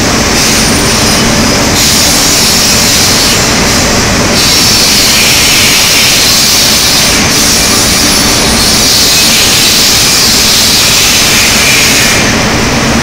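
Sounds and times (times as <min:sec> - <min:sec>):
industrial furnace roar: 0:00.0 - 0:13.0.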